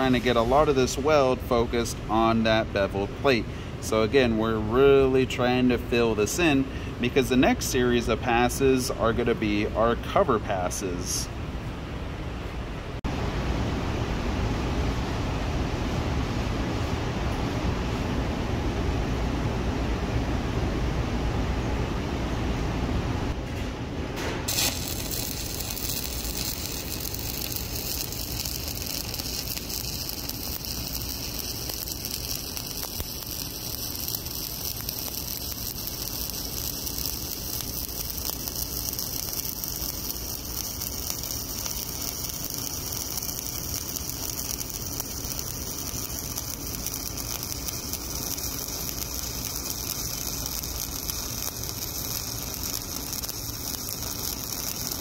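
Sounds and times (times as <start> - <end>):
stick welding arc crackling: 0.0 - 9.7, 24.4 - 55.0.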